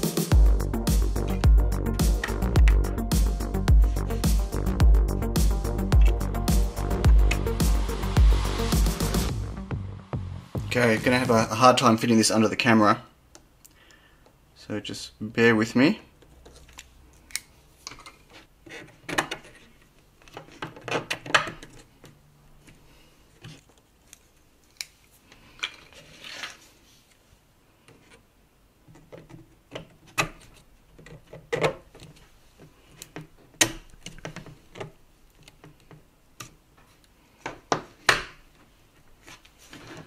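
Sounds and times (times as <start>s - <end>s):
plastic parts clicking and knocking: 16.2s - 22.8s, 28.8s - 38.4s.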